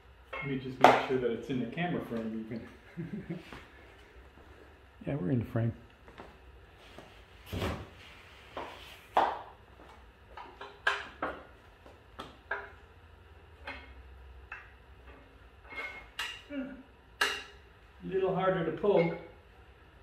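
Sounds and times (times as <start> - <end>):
clicks and knocks of metal stand: 10.4 - 11.5, 12.2 - 12.8, 13.6 - 16.5, 17.2 - 17.6.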